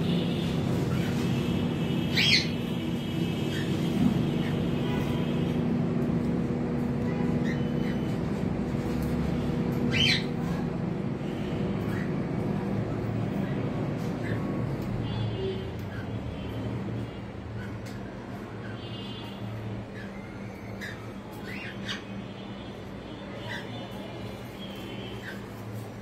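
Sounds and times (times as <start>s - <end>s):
cockatiel screeching calls: 2.1s - 2.5s, 9.9s - 10.3s.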